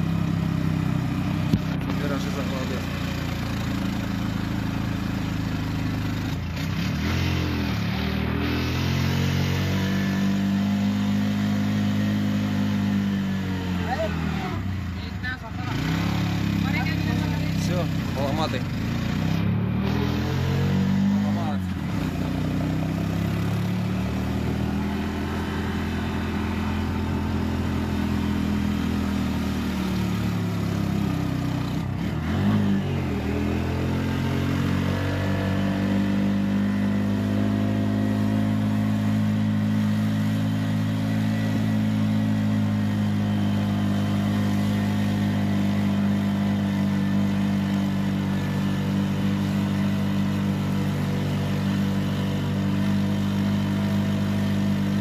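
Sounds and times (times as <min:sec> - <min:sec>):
bus engine running: 0:00.0 - 0:55.0.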